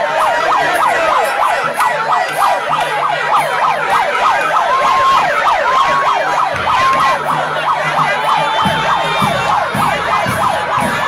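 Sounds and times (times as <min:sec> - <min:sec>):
siren wailing: 0:00.0 - 0:11.0.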